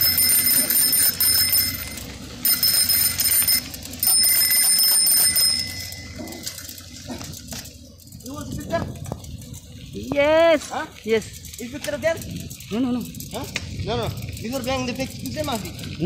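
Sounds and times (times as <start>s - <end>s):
bicycle bell trills: 0.0s - 7.1s
tyres rumbling on dirt: 0.0s - 16.0s.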